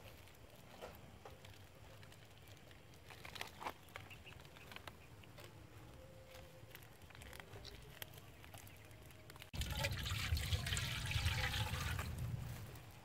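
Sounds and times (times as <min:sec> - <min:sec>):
water pouring into metal wok: 0:09.6 - 0:12.4.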